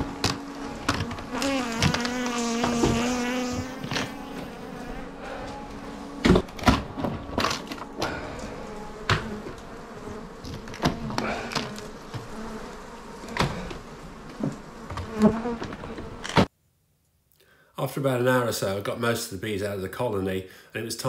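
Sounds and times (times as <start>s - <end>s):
honey bees buzzing: 0.0s - 16.5s.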